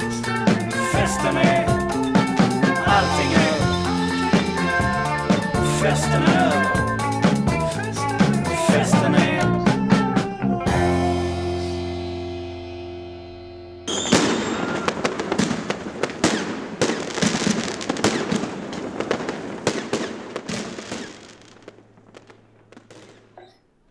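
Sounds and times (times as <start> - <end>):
song's last chord ringing: 0.0 - 7.7, 10.7 - 14.3
dense crackling and popping: 14.6 - 23.5.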